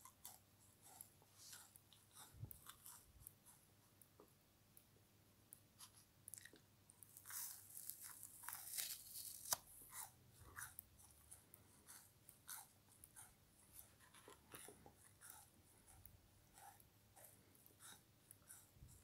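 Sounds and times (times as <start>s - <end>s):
frozen sponge crunching: 7.2s - 9.6s.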